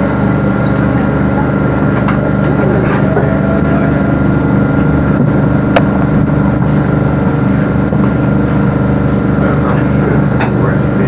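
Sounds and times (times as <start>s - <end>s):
train interior running hum: 0.0s - 11.0s.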